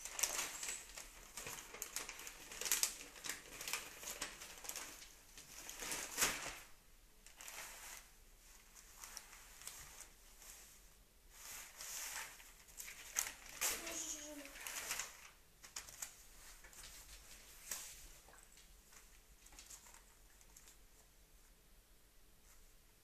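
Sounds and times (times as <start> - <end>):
paper leaflets rustling: 0.0 - 6.7, 11.6 - 20.9.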